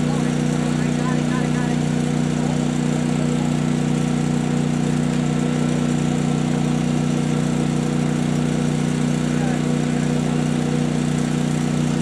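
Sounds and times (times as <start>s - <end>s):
generator and compressor droning: 0.0s - 12.0s.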